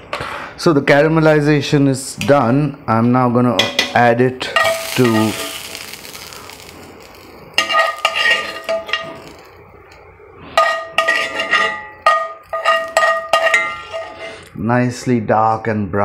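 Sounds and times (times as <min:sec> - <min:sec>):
hot oil sizzling: 0:03.5 - 0:14.6
metal spoon scraping frying pan: 0:03.6 - 0:09.5, 0:10.5 - 0:14.5
pan ringing: 0:04.6 - 0:06.0, 0:10.6 - 0:14.2.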